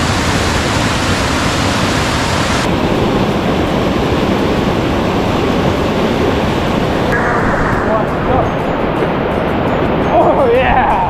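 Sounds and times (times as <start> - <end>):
whitewater river rushing: 0.0 - 7.2.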